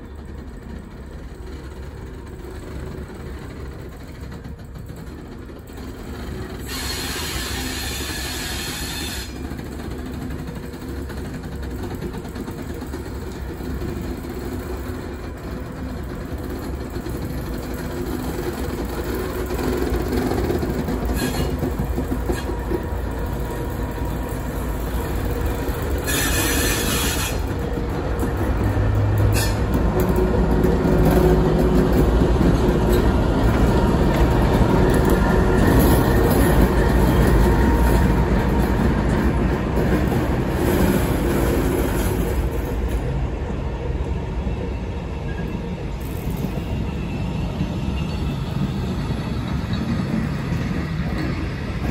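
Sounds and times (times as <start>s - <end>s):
diesel locomotive engine humming: 0.0s - 51.9s
wheels rumbling on rails: 0.0s - 51.9s.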